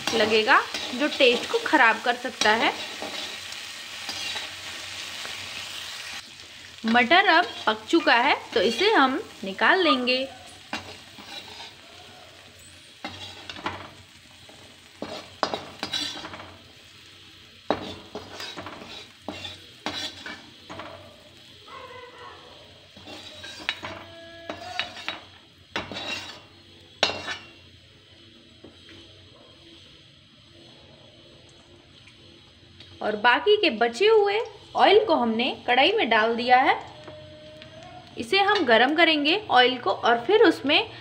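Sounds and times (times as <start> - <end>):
metal spoon scraping a pan: 0.0 - 17.0, 17.6 - 21.6, 22.6 - 31.3
hot oil sizzling: 0.0 - 41.0.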